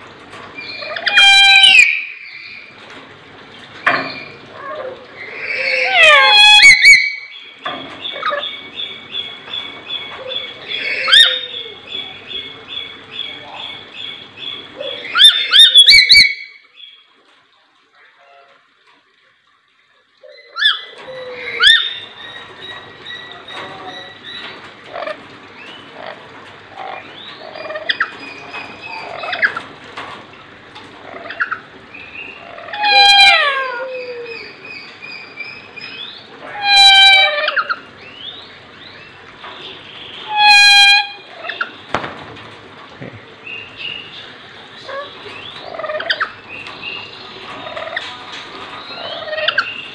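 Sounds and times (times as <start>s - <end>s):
loud harsh bird squawk: 0.8s - 2.1s, 5.4s - 7.2s
birds chirping: 3.4s - 17.2s, 30.9s - 49.9s.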